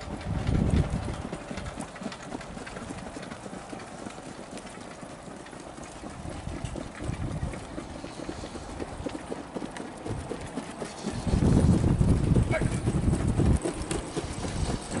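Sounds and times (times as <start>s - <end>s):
trotting horse hooves on track: 0.0s - 15.0s.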